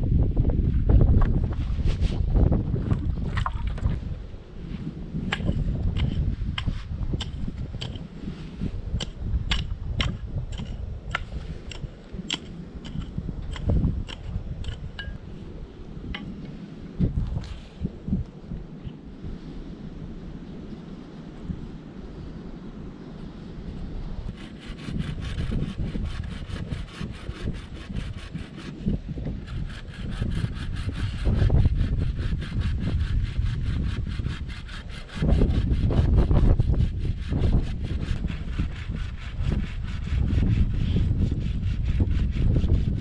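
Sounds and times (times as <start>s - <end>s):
low rumble: 0.0s - 26.4s
hand saw cutting wood: 5.3s - 8.1s, 9.0s - 15.2s, 24.3s - 43.0s.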